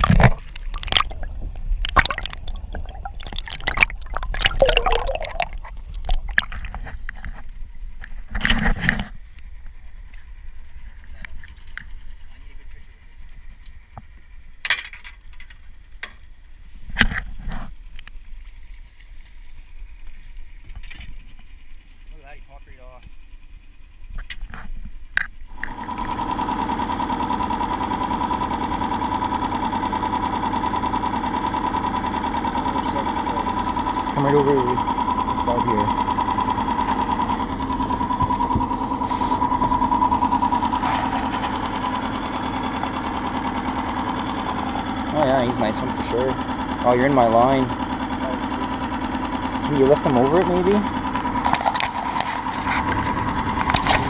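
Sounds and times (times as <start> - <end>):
net splashing in water: 0.0 - 6.8
outboard motor running: 0.0 - 54.0.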